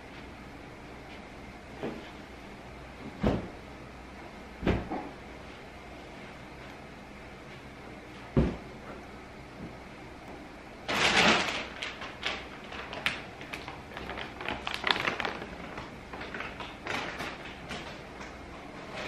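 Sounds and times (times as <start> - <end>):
plastic chip bag crinkling: 10.9 - 17.9.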